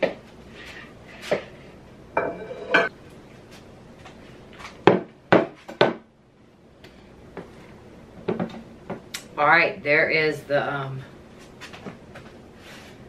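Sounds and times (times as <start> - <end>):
dishes and pans clinking: 2.2 - 2.9
ringing clatter of cookware: 2.2 - 2.9.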